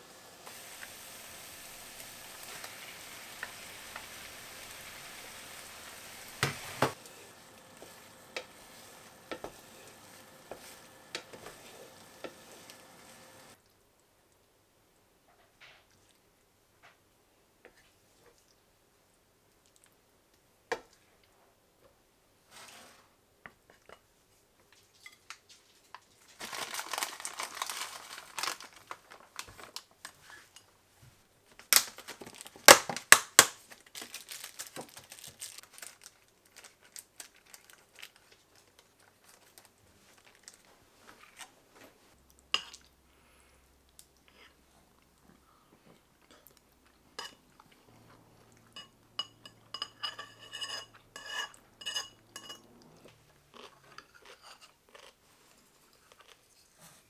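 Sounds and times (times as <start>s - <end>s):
plastic container crinkling: 26.2s - 30.4s, 31.6s - 41.5s.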